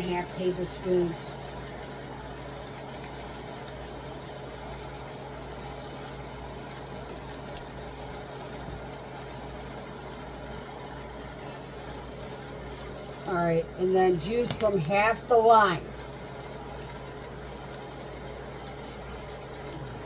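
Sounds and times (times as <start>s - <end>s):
constant low hum: 0.0s - 20.0s.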